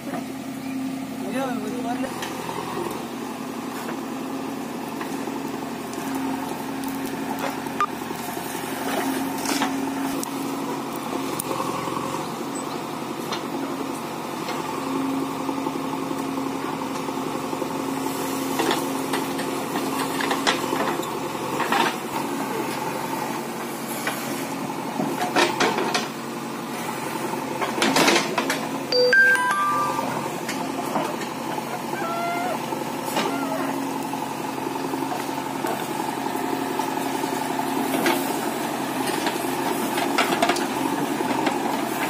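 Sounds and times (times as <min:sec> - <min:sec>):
heavy diesel engines running: 0:00.0 - 0:42.0.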